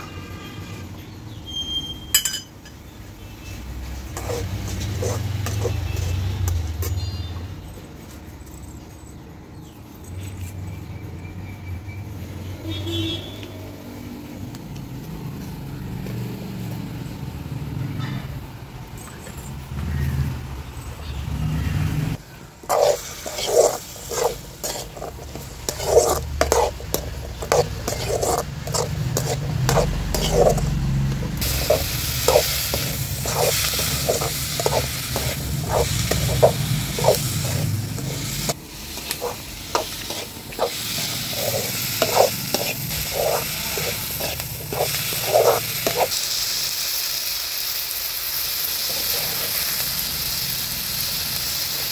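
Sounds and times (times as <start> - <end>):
metal spoon scraping a pot: 4.0 - 7.2, 22.7 - 46.2
frying sizzle: 22.0 - 51.9.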